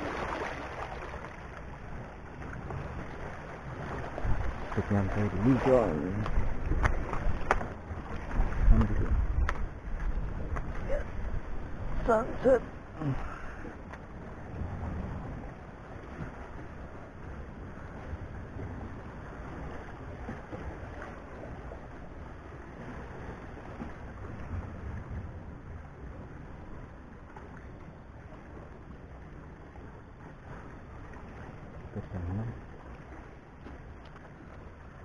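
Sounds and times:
waves washing against rocks: 0:00.0 - 0:01.5, 0:02.4 - 0:12.6
wind rumbling on microphone: 0:00.0 - 0:35.0.

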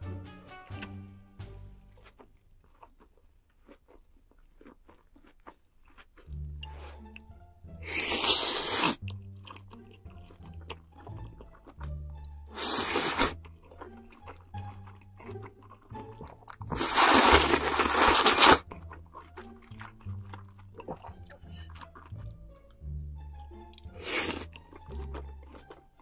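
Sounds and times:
wet chewing clicks: 0:01.7 - 0:26.0
slurping noodles and soup: 0:06.2 - 0:22.4, 0:23.7 - 0:26.0.

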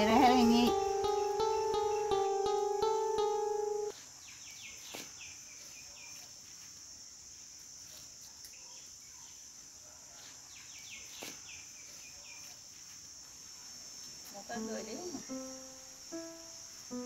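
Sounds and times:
high-pitched insect drone: 0:00.0 - 0:03.8, 0:14.5 - 0:17.0.

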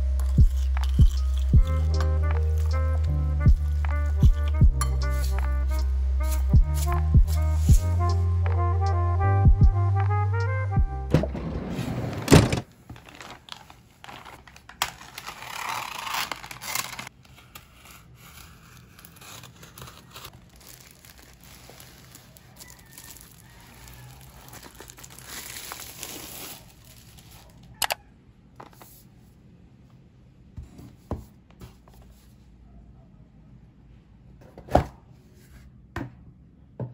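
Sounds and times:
background music: 0:00.0 - 0:11.7
packaging tearing and crinkling: 0:12.9 - 0:27.8.

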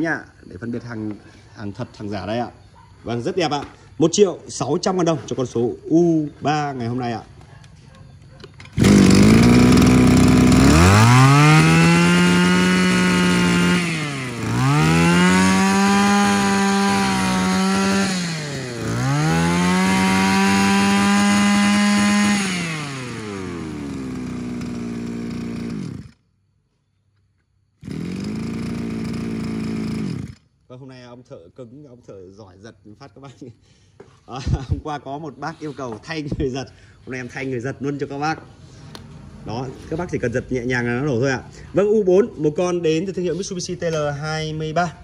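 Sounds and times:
brush cutter engine revving and idling: 0:08.4 - 0:26.2, 0:27.8 - 0:30.5.

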